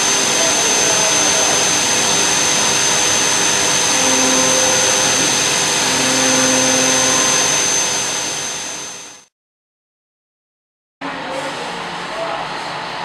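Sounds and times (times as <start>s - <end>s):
lower machine tone: 0.0s - 9.3s
milling machine high whine: 0.0s - 9.3s.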